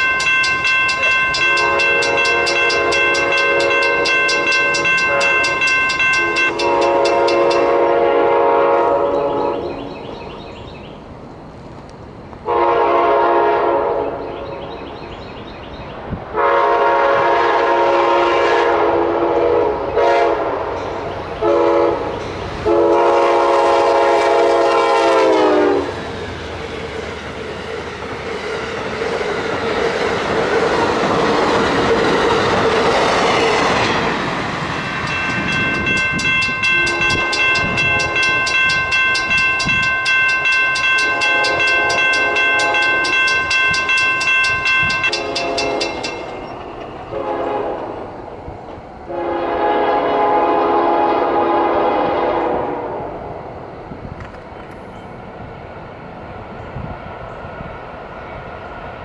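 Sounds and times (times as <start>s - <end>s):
crossing warning bell ringing: 0.0s - 10.5s, 30.2s - 48.1s
train rushing past: 0.0s - 59.0s
train horn blasts: 1.1s - 10.0s, 12.4s - 14.3s, 16.3s - 26.0s, 34.9s - 48.2s, 49.1s - 53.3s.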